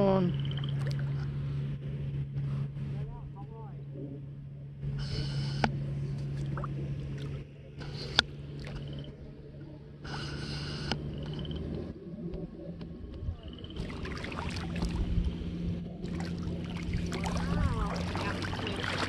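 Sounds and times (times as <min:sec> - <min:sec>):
low steady hum: 0:00.0 - 0:19.0
water sloshing and splashing: 0:00.4 - 0:01.4, 0:06.2 - 0:10.0, 0:12.3 - 0:19.0.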